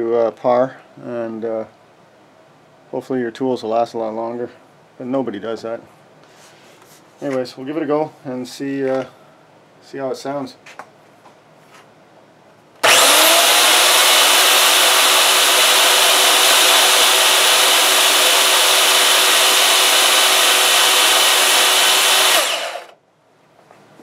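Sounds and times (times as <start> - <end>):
miter saw motor running: 12.8 - 23.0.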